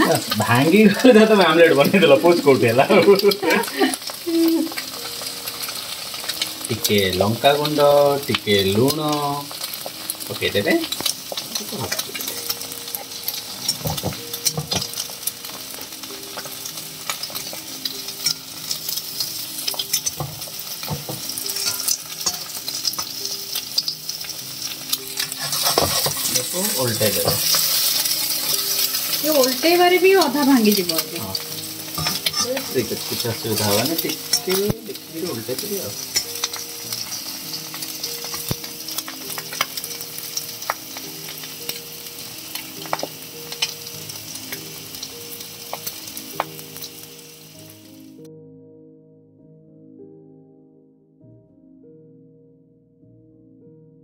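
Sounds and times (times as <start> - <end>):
egg sizzling in hot oil: 0.0 - 48.3
metal spatula scraping pan: 19.8 - 23.1, 25.1 - 29.2, 31.3 - 34.6.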